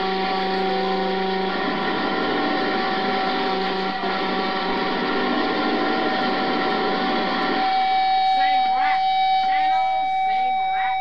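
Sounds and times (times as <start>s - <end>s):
grainy buzzing texture: 0.0s - 11.0s
held drone tones: 0.0s - 11.0s.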